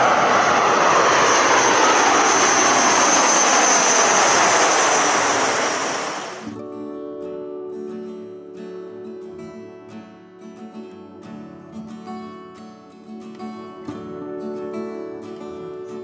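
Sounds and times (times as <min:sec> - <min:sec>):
aircraft flying past low: 0:00.0 - 0:06.6
acoustic guitar music: 0:06.5 - 0:16.0.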